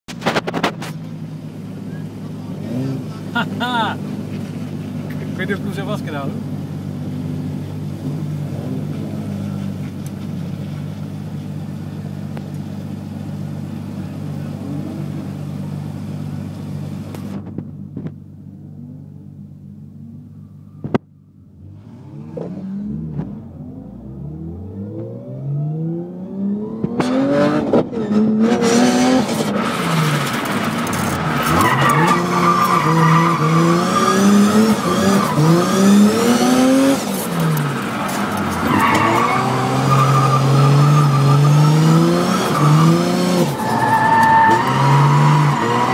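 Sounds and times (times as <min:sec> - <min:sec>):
car engine idling and revving: 0:00.0 - 0:45.9
tyre squeal: 0:37.4 - 0:45.9.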